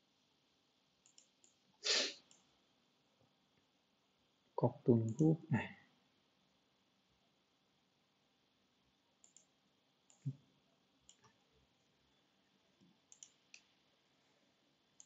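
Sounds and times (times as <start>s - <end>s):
computer mouse clicks: 1.0s - 1.6s, 9.2s - 9.5s, 10.1s - 10.4s, 11.0s - 11.4s, 12.8s - 13.7s.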